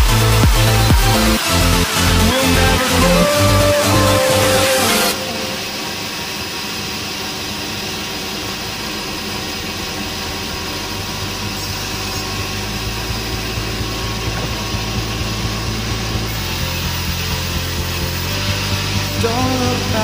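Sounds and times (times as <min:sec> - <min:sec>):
band saw running: 0:00.0 - 0:20.0
low hum with regular knocking: 0:08.2 - 0:20.0.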